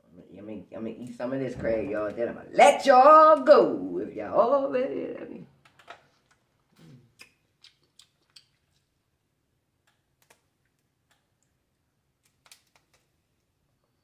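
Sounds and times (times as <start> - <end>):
lips smacking and sucking: 6.3 - 8.9
crab shell cracking: 12.2 - 13.1.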